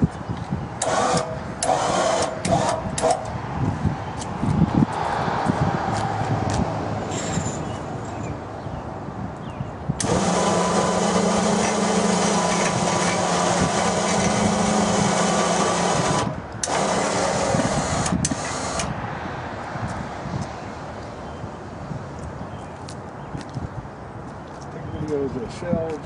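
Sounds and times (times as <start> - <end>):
electric hoist motor running: 0.8 - 3.2, 10.0 - 18.9.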